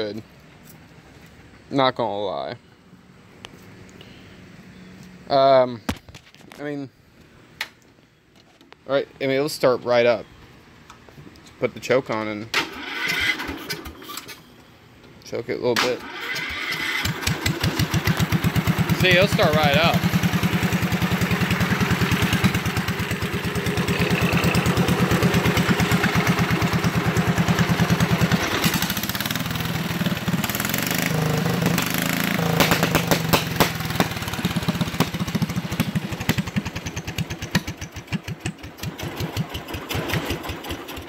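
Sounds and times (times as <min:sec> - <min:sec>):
small tractor engine running: 0:16.0 - 0:41.0.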